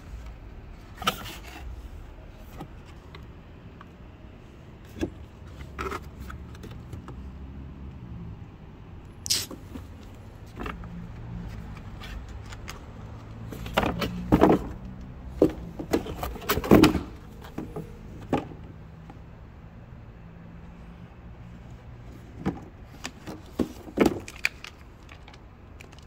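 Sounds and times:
cardboard rustling and knocking: 13.4s - 18.6s, 22.4s - 24.3s.

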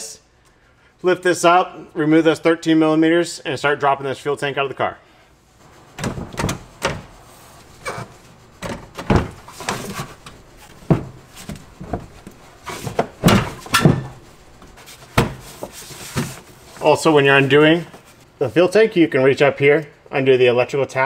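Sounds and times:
hands working on car parts: 5.9s - 16.9s.

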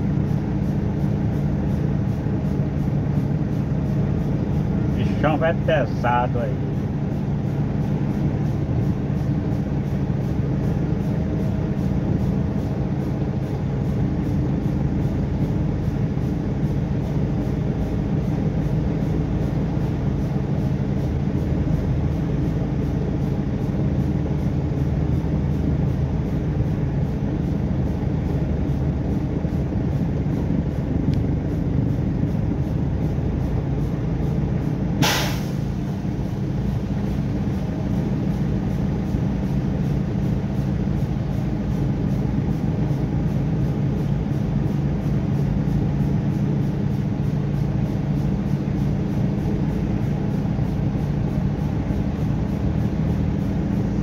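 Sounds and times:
truck diesel engine drone: 0.0s - 54.0s
short sharp hiss: 35.0s - 35.8s.

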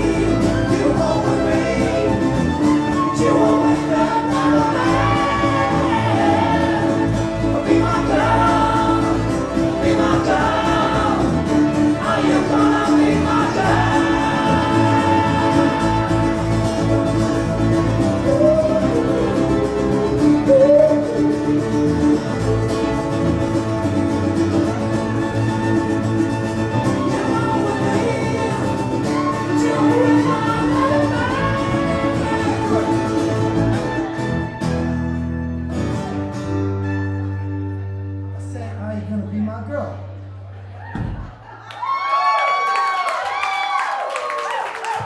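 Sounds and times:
men singing: 0.0s - 21.7s, 27.0s - 34.1s
strummed acoustic guitars: 0.0s - 38.8s.

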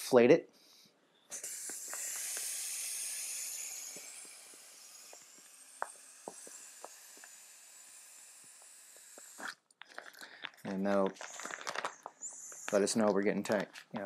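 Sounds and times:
air hissing out of valve: 1.3s - 9.6s, 11.2s - 13.1s.

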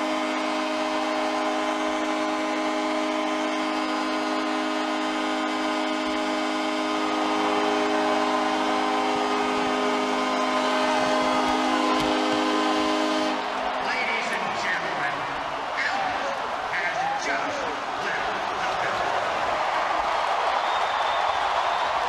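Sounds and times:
arena horn long blast: 0.0s - 15.7s
crowd cheering and roaring: 0.0s - 22.0s.

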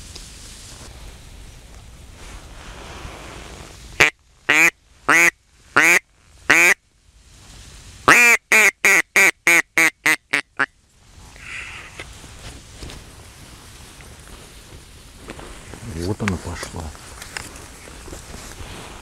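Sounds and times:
duck call quacks: 4.0s - 6.8s, 8.1s - 10.7s.

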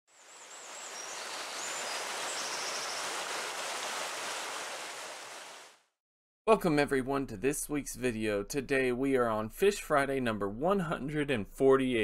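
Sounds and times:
rushing water: 0.1s - 5.8s.

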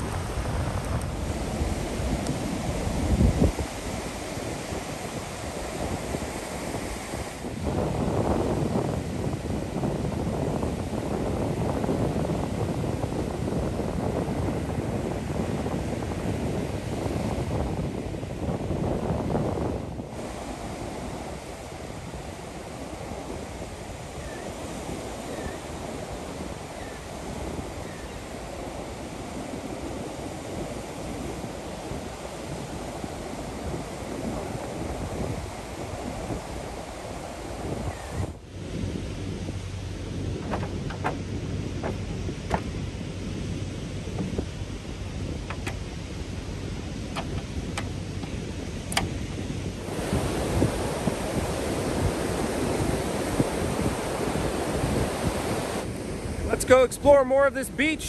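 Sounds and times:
surf: 0.0s - 58.0s
wind buffeting microphone: 0.0s - 58.0s.

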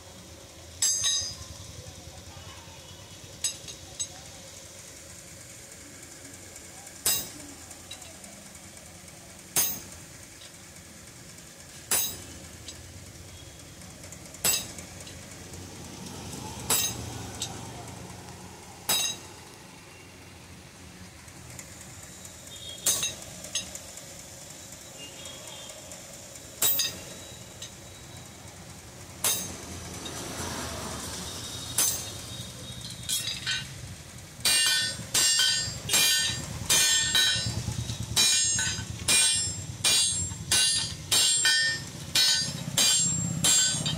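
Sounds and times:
hammer striking steel on anvil: 0.8s - 1.6s, 7.0s - 8.1s, 9.5s - 10.0s, 11.9s - 12.8s, 14.4s - 14.8s, 16.6s - 17.6s, 18.9s - 19.4s, 22.8s - 23.7s, 26.6s - 27.7s, 29.2s - 30.2s, 31.7s - 33.8s, 34.4s - 43.9s.

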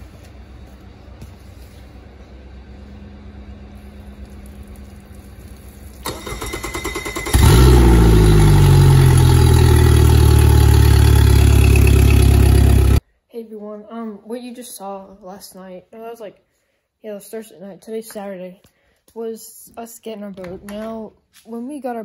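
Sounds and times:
engine running loudly: 6.0s - 13.0s
engine starter cranking: 6.0s - 13.0s.

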